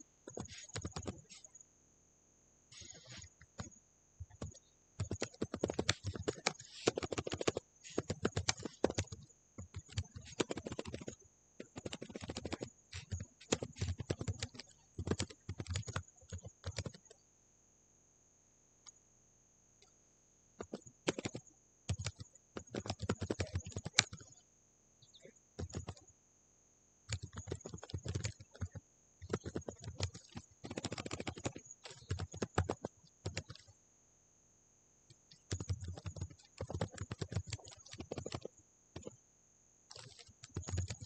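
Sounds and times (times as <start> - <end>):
typing on computer keyboard: 0.3 - 1.5, 2.7 - 17.2, 20.6 - 24.4, 25.6 - 26.1, 27.1 - 33.7, 35.2 - 39.2, 39.9 - 41.0.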